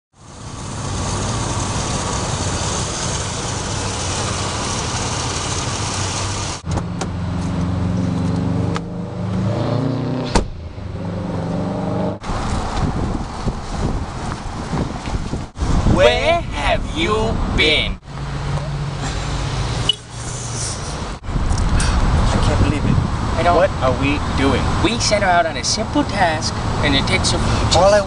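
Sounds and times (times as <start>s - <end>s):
car engine running: 0.2s - 8.9s.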